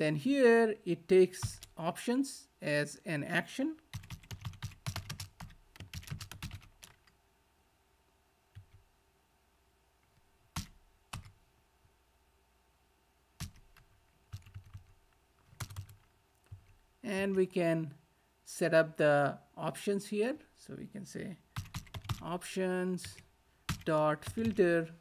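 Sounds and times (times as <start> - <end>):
typing on computer keyboard: 3.9 - 7.1, 8.6 - 8.8, 10.6 - 11.3, 13.4 - 16.8, 21.6 - 22.3, 23.0 - 24.7.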